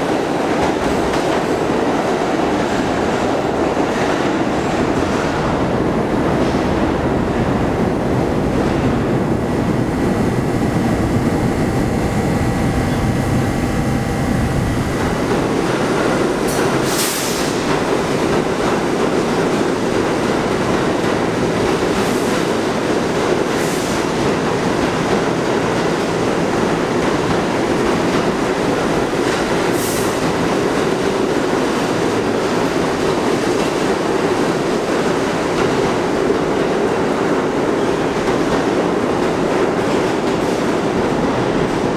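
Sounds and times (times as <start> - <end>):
train wheels rumbling on rail: 0.0 - 41.9
faint steady whine: 9.2 - 15.3.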